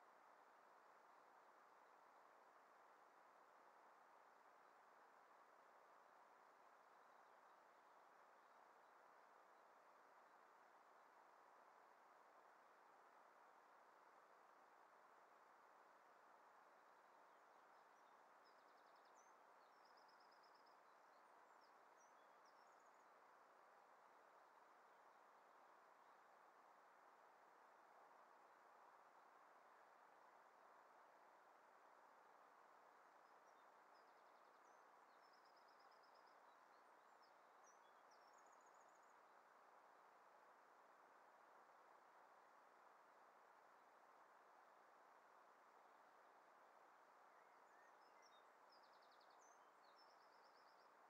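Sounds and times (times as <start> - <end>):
faint steady hiss: 0.0 - 51.0
distant songbird chirping: 18.0 - 23.2, 33.3 - 39.2, 47.3 - 51.0.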